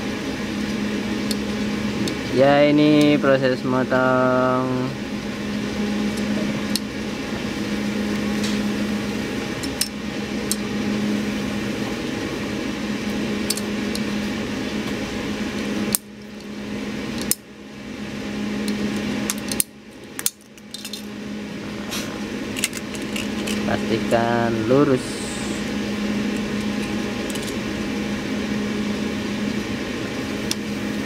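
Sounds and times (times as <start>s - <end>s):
steady low hum: 0.0s - 31.0s
cable cutter metallic clicks: 17.2s - 17.4s.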